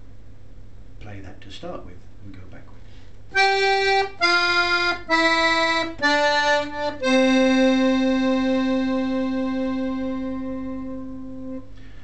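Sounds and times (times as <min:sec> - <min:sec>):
accordion playing descending notes: 0:03.3 - 0:11.7.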